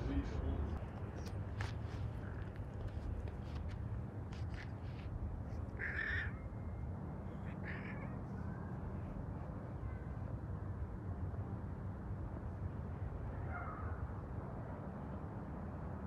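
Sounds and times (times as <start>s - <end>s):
harsh animal calls: 5.8s - 6.5s, 7.3s - 8.4s.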